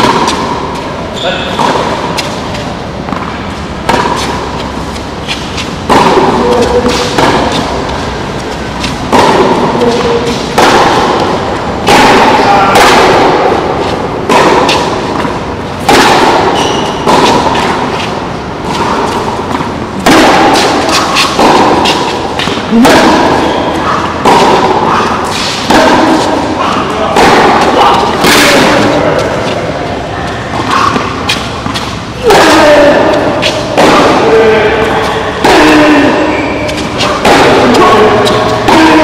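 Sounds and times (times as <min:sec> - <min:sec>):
tennis balls struck and bouncing: 0:00.0 - 0:39.0.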